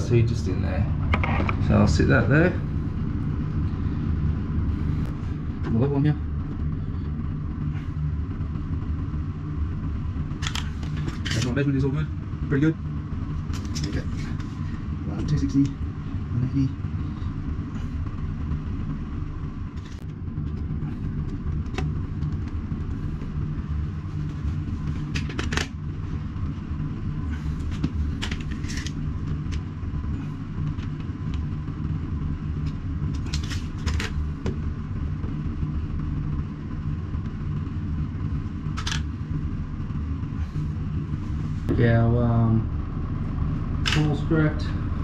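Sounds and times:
steady low hum: 0.0s - 45.0s
tools clicking and scraping: 27.7s - 29.6s.

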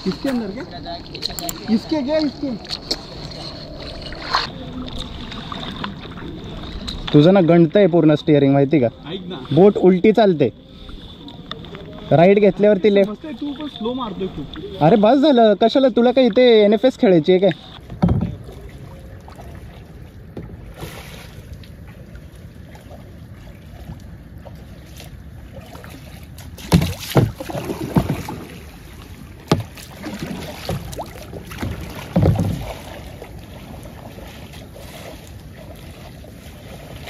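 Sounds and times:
paddle splashes in water: 0.0s - 7.4s, 17.5s - 37.0s.

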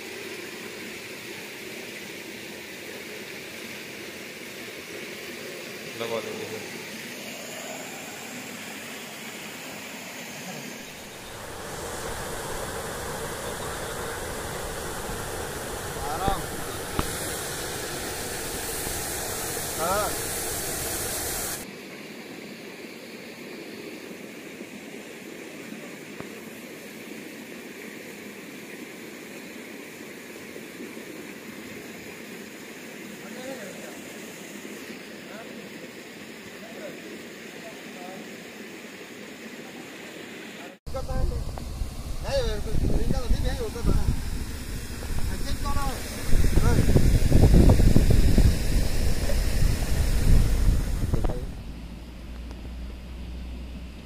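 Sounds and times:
steady outdoor hiss: 0.0s - 54.0s
steady rushing noise: 5.4s - 21.7s, 40.9s - 54.0s
wind buffeting microphone: 40.9s - 51.7s.

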